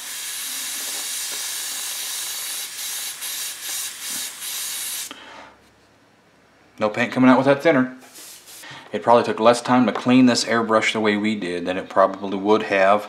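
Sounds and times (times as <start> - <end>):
airbrush spraying hiss: 0.0 - 5.1, 8.0 - 8.7.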